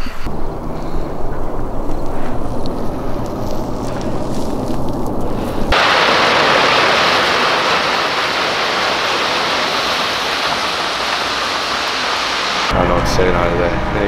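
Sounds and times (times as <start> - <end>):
rushing water hiss: 5.5 - 12.8.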